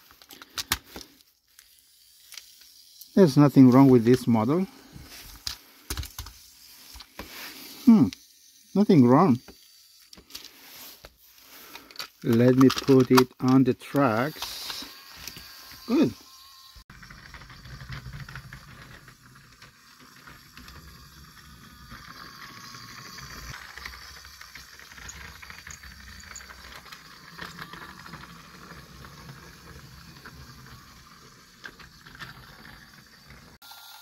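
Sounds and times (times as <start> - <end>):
toy train motor whirring: 0.0 - 34.0
wheel and gear rattle: 16.9 - 33.6.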